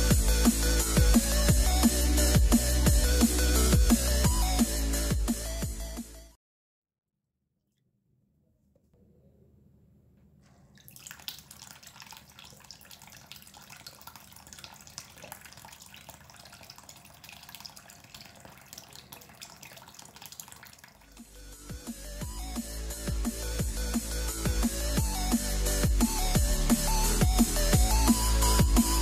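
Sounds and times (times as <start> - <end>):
water jet splashing: 10.7 - 21.5.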